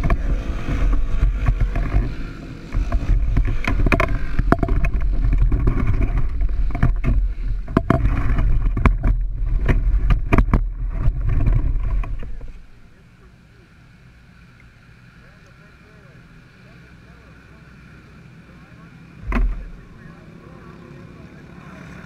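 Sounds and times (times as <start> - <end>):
knocks and rattles: 0.0 - 12.6, 19.2 - 19.8
go-kart rolling over bumpy grass: 0.0 - 13.0, 18.6 - 22.0.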